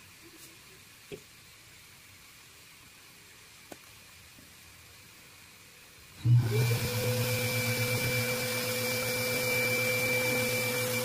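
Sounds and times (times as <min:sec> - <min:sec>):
electric motor whining: 0:06.2 - 0:11.0.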